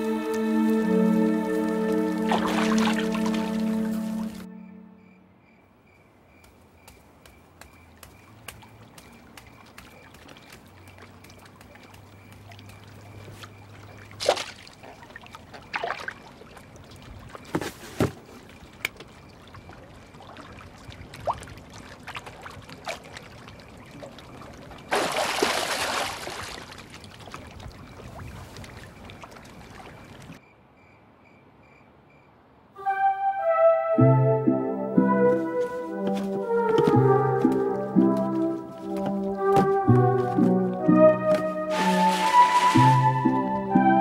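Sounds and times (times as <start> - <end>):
water splashes: 0.0 - 4.5, 7.8 - 30.4, 35.4 - 44.0
water trickling: 0.0 - 4.5, 8.2 - 17.6, 18.2 - 30.4, 36.1 - 43.8.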